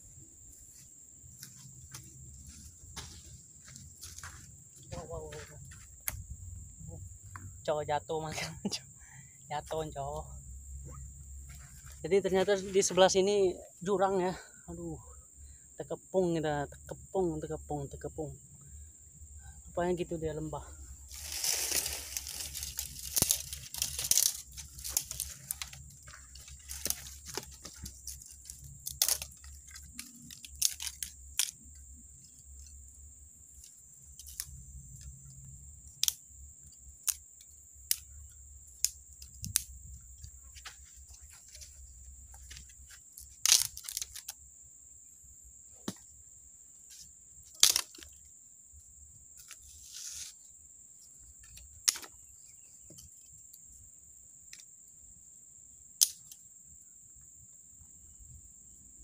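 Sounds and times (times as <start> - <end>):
high insect drone: 0.0 - 59.0
crunching dry leaves and twigs: 0.4 - 6.8, 21.0 - 44.4, 46.9 - 48.2.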